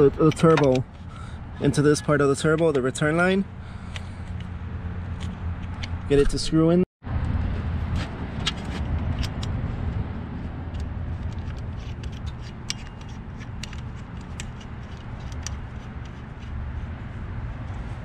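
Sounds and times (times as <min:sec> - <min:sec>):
metal fitting clicking and scraping: 0:00.0 - 0:01.0, 0:10.7 - 0:16.6
steady low rumble: 0:00.0 - 0:18.0.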